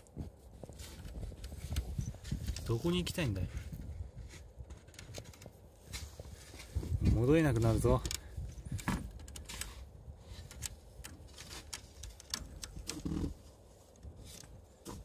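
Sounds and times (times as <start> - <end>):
cats stepping through crunching snow: 0.0 - 2.8, 5.4 - 7.1.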